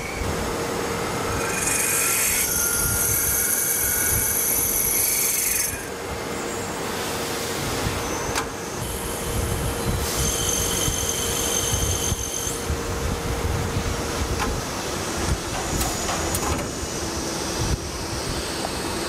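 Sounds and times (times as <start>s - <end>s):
lathe running with low hum: 0.0s - 19.0s
drill squealing: 1.0s - 6.6s, 8.0s - 12.7s.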